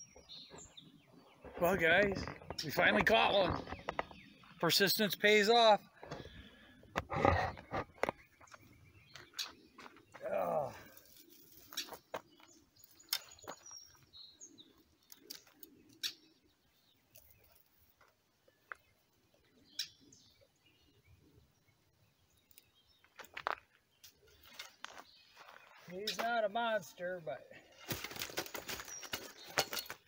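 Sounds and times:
bird chirps: 0:00.0 - 0:05.9, 0:07.6 - 0:10.2, 0:11.0 - 0:17.7, 0:18.4 - 0:26.6.

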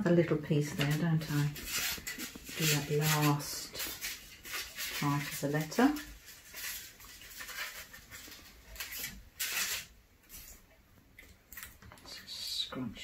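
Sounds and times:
foil crinkling and rustling: 0:00.5 - 0:10.6
scissors snipping foil: 0:00.7 - 0:10.5.

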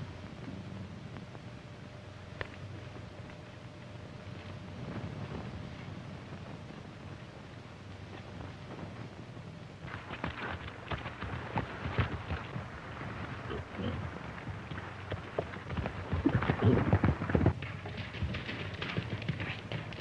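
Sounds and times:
horse hooves on dry leaves: 0:09.8 - 0:20.0.

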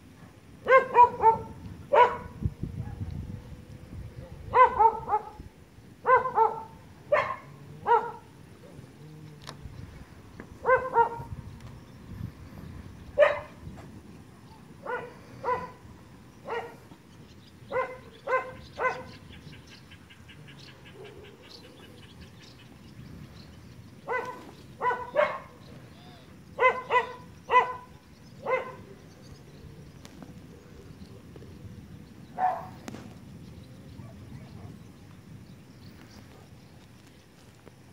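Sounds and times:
dog barking: 0:00.6 - 0:03.0, 0:04.2 - 0:05.4, 0:06.0 - 0:08.3, 0:10.6 - 0:11.3, 0:13.2 - 0:13.6, 0:14.8 - 0:15.8, 0:16.4 - 0:16.8, 0:17.7 - 0:19.1, 0:24.1 - 0:25.6, 0:26.6 - 0:28.8, 0:32.4 - 0:32.8.

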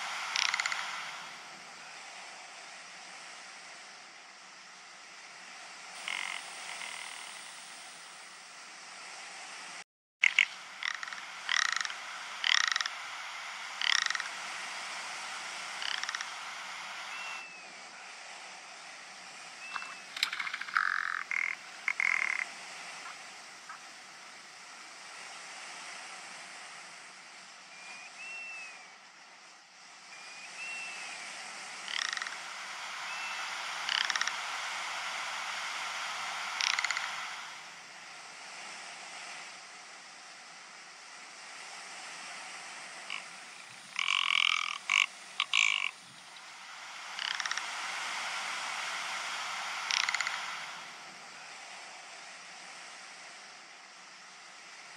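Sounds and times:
bird rasping croaks: 0:00.2 - 0:01.2, 0:06.0 - 0:07.4, 0:10.2 - 0:13.1, 0:13.7 - 0:14.4, 0:15.7 - 0:16.4, 0:19.7 - 0:22.5, 0:31.8 - 0:32.5, 0:33.8 - 0:34.4, 0:36.5 - 0:37.3, 0:43.1 - 0:46.2, 0:47.0 - 0:47.8, 0:49.7 - 0:50.5
thin bird chirps: 0:19.6 - 0:21.4.

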